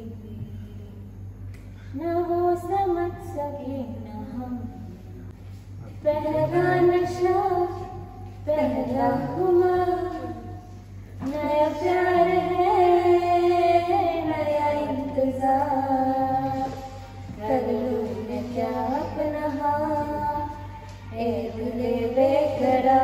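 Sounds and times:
women singing worship song: 6.0s - 23.0s.

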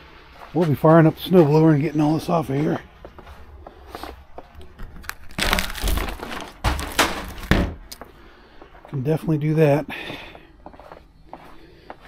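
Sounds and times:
footsteps crunching through snow: 0.1s - 7.6s.

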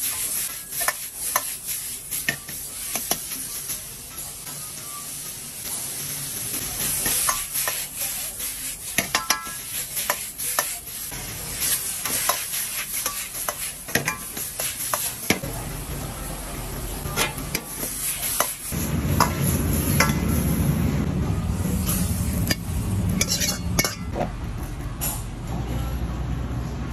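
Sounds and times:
food sizzling: 0.0s - 24.0s
low rumble: 18.8s - 23.2s
metal ladle scraping a wok: 21.8s - 24.1s.

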